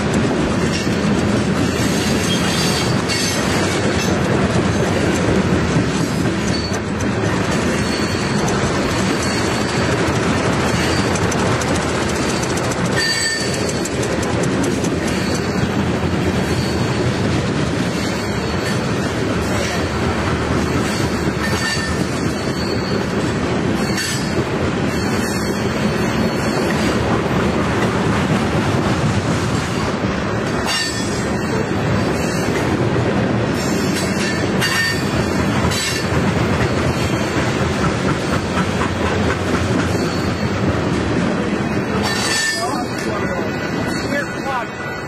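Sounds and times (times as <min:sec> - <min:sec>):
steel wheels rumbling on rail: 0:00.0 - 0:45.0
high wheel squeals: 0:01.6 - 0:04.1, 0:06.4 - 0:14.2, 0:14.8 - 0:27.1, 0:33.5 - 0:37.5, 0:39.7 - 0:40.8, 0:41.7 - 0:45.0.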